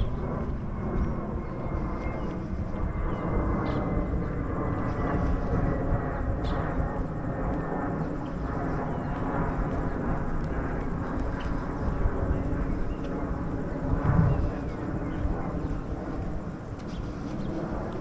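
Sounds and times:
street ambience rumble: 13.5s - 17.4s.

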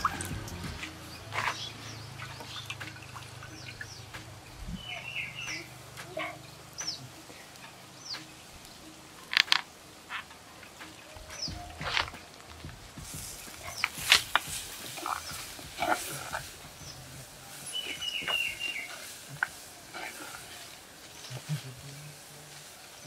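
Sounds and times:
birds chirping: 0.0s - 23.0s.

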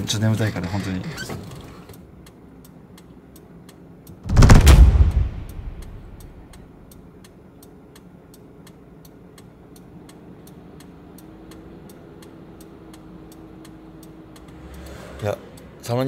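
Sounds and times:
loud rushing noise: 4.2s - 6.6s
indicator relay ticking: 6.0s - 14.8s.

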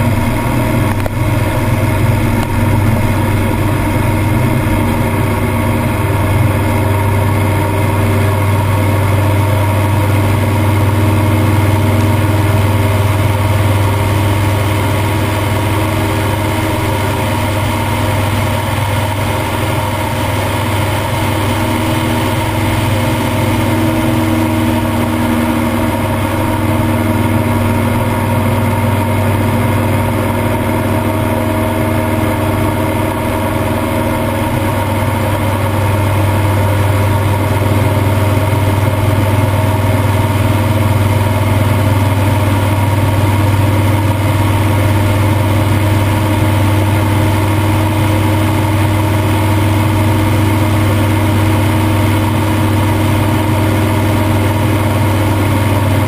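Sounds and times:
rushing air: 0.0s - 9.8s
airplane engine droning: 0.0s - 56.0s.

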